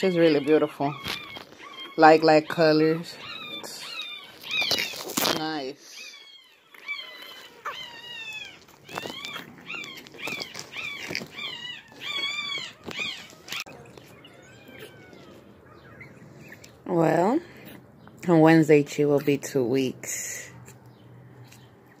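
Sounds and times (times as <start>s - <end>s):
puppy crying: 0.0s - 16.7s.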